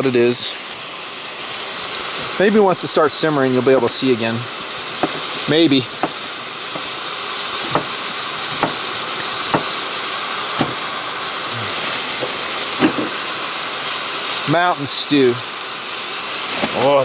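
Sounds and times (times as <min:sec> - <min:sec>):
meat and onion sizzling: 0:00.0 - 0:17.0
fat popping: 0:05.0 - 0:05.4, 0:06.0 - 0:07.0, 0:07.6 - 0:08.9, 0:09.5 - 0:09.8, 0:10.6 - 0:10.9.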